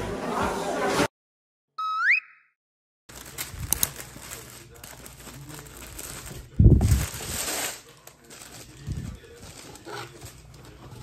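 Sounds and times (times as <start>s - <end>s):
tissue paper rustling: 3.1s - 11.0s.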